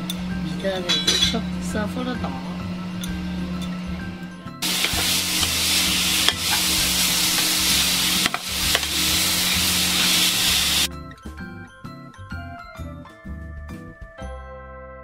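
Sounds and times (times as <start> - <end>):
metal spatula knocking pan: 0.9 - 1.4
food sizzling in a wok: 4.6 - 10.9.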